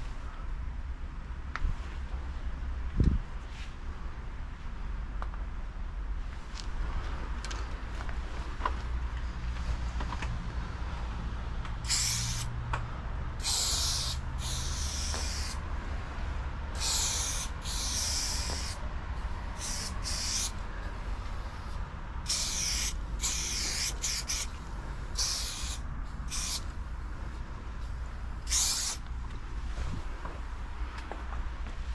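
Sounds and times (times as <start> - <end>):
spray paint can hissing: 11.8 - 12.5, 13.4 - 15.6, 16.7 - 18.8, 19.5 - 20.6, 22.2 - 24.6, 25.2 - 26.8, 28.4 - 29.1.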